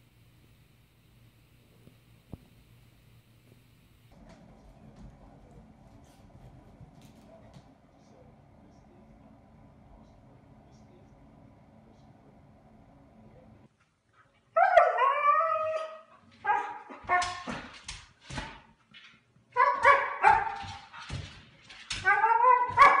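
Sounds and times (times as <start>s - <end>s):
dog howling and barking: 14.6s - 17.4s, 22.0s - 23.0s.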